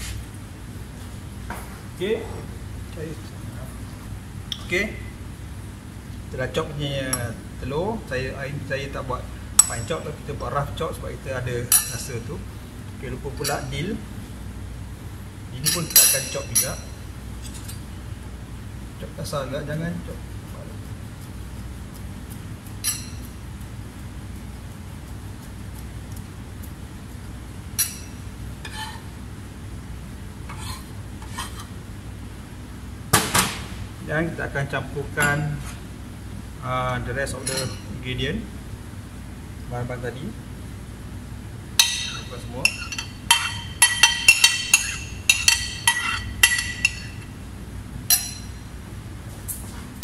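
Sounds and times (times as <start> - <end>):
steady low hum: 0.0 - 50.0
utensils clinking against dishes: 9.6 - 10.0, 11.7 - 12.3, 13.4 - 13.8, 15.6 - 17.8, 21.9 - 23.4, 27.8 - 29.1, 37.4 - 37.9, 41.8 - 47.3, 48.1 - 48.6
utensil clinking against mixing bowl: 37.4 - 37.9, 41.8 - 47.3.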